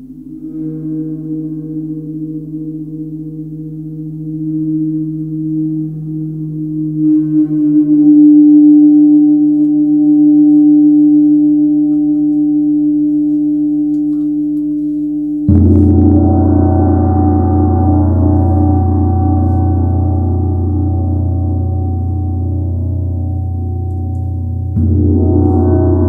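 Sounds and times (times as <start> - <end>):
gong ringing: 15.5 - 26.0
gong struck with padded mallet: 15.5 - 26.0.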